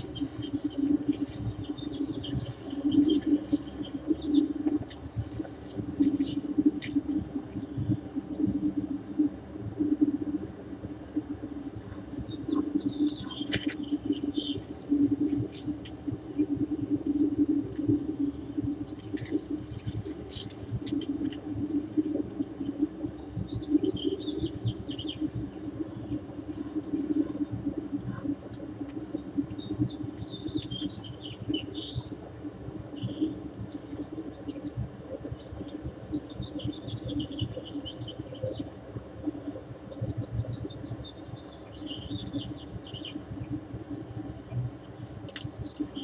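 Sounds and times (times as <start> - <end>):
birds singing and trilling: 0.0 - 7.1, 11.2 - 15.6, 21.6 - 28.1, 29.1 - 46.0
low background noise: 0.0 - 46.0.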